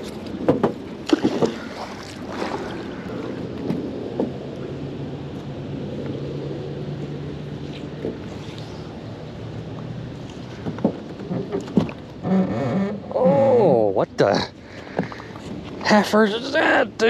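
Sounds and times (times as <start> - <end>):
sharp clunks in boat: 0.0 - 2.6, 3.6 - 4.4, 9.8 - 13.2, 14.8 - 15.8
water lapping: 0.0 - 17.0.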